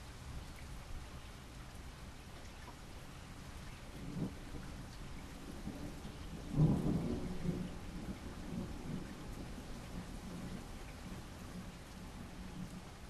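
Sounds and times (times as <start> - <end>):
steady rain: 0.0 - 13.0
rolling thunder rumble: 3.7 - 12.9.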